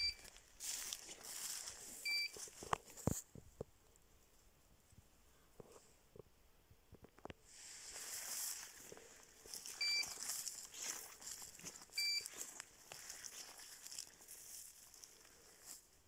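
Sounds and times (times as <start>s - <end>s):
short electronic beeps: 0.0s - 0.3s, 2.0s - 2.4s, 9.8s - 10.2s, 12.0s - 12.3s
dry grass rustling underfoot: 0.0s - 6.0s, 7.4s - 16.0s.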